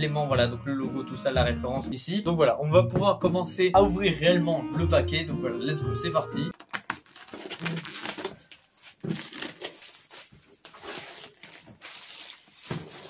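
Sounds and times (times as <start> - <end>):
packing tape peeling off cardboard: 6.5 - 13.0.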